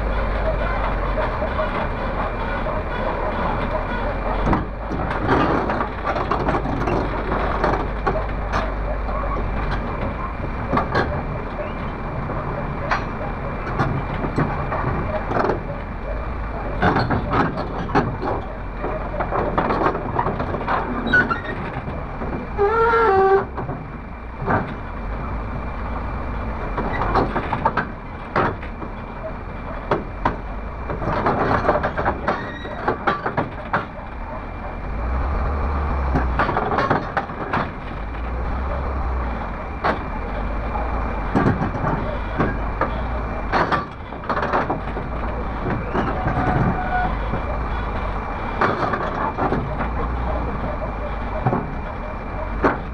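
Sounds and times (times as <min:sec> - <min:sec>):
excavator diesel engine rumbling: 0:00.0 - 0:52.9
metal knocks and clanks: 0:16.7 - 0:24.9, 0:29.7 - 0:34.3, 0:41.2 - 0:52.9.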